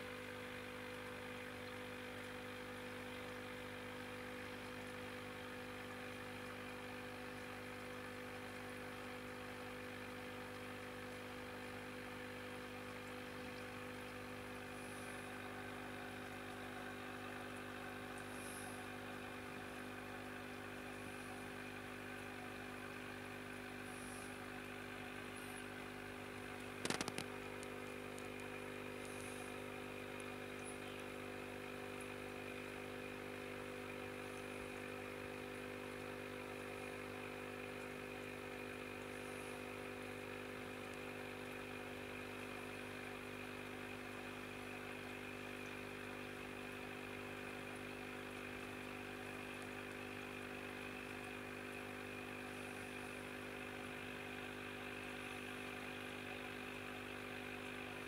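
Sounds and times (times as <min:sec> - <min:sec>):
aquarium equipment humming: 0:00.0 - 0:58.0.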